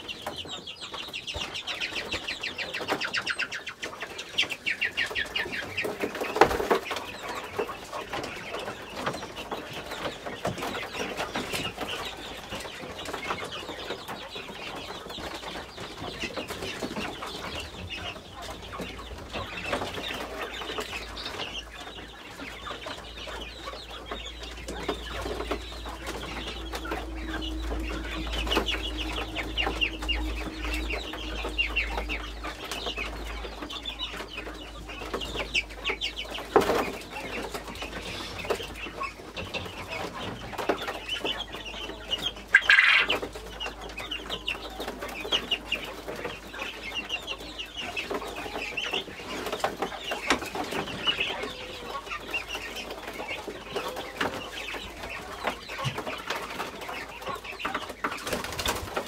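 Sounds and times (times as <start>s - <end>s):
chickens clucking: 0.0s - 59.0s
low rumble: 24.9s - 35.0s.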